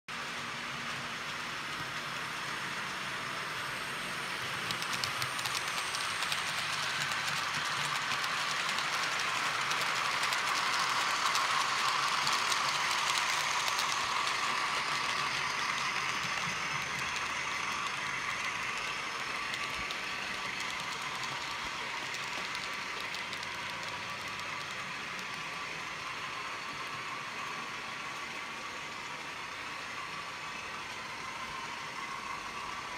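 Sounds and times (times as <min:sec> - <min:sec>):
model train rolling past: 0:00.1 - 0:32.9.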